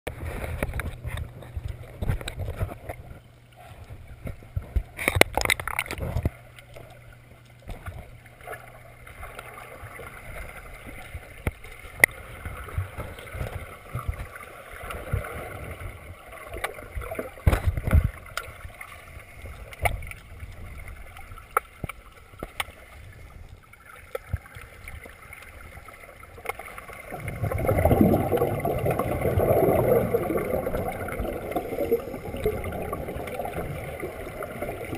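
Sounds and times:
muffled underwater rumble: 0.1s - 34.9s
rushing water: 8.4s - 34.9s.

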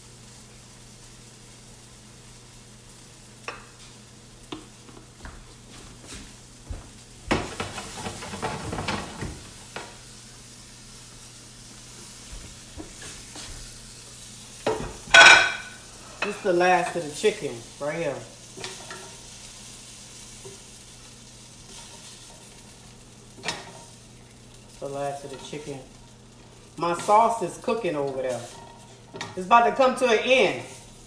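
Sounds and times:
chicken sizzling in oil: 9.5s - 31.0s.

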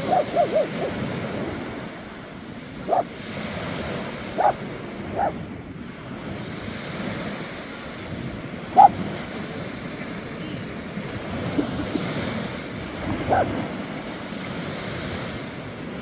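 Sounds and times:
small waves breaking on beach: 0.0s - 16.0s
wind buffeting microphone: 0.0s - 16.0s
short pitched calls: 2.9s - 3.1s.

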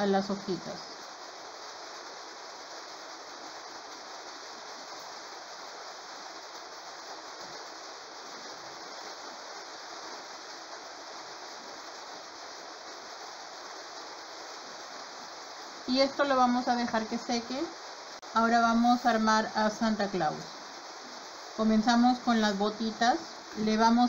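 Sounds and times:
steady room hiss: 0.0s - 24.0s.

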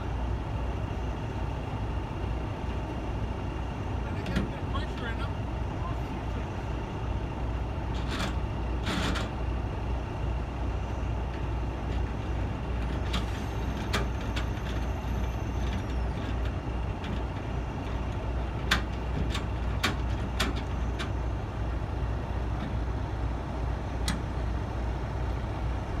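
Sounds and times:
truck diesel engine running: 0.0s - 26.0s
metallic clunks and knocks: 18.6s - 21.2s.

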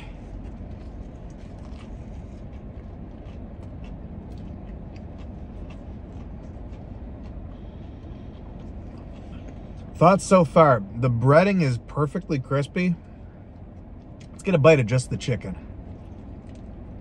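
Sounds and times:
person chewing crispy food: 0.0s - 10.0s, 15.7s - 17.0s
low car cabin hum: 0.0s - 17.0s.

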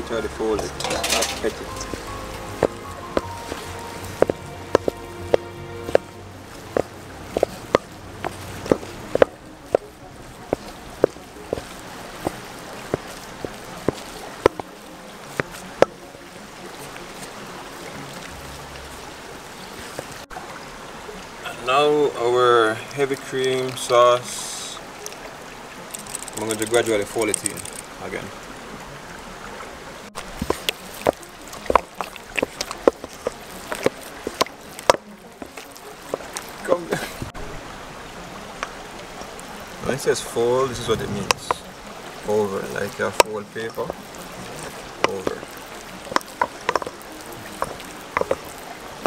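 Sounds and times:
steady background hiss: 0.0s - 49.0s
wooden spatula tapping metal bowl: 0.6s - 6.1s.

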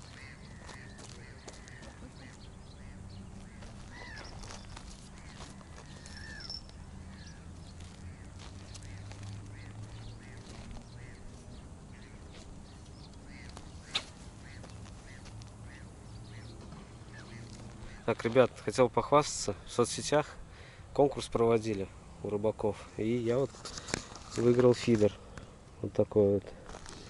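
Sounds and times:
distant waterfowl calling: 0.0s - 18.2s.

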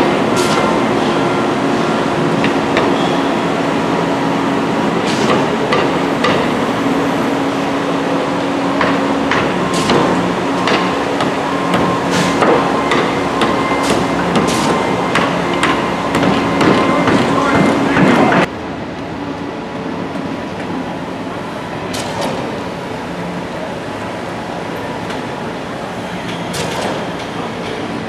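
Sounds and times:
diesel engines droning: 0.0s - 28.0s.

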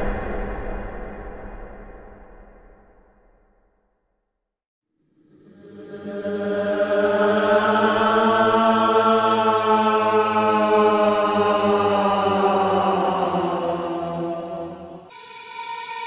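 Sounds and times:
eerie choir-like drone: 5.0s - 16.0s.

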